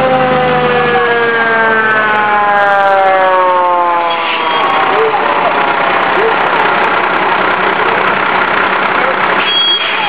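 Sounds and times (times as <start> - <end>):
fire truck siren wailing: 0.0 - 10.0
low engine rumble: 4.4 - 10.0.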